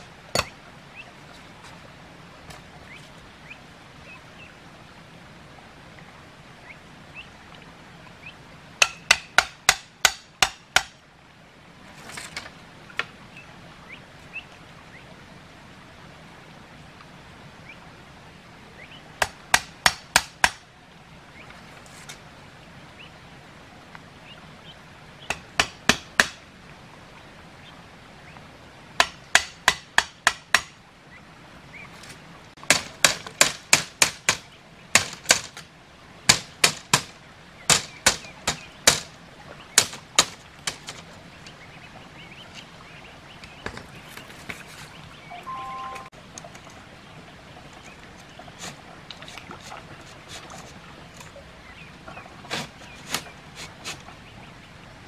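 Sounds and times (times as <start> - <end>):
bamboo stakes being struck: 0.4 - 0.6, 8.8 - 11.0, 19.2 - 20.6, 25.3 - 26.4, 29.0 - 30.8, 32.6 - 35.7, 36.3 - 39.2, 39.8 - 41.0.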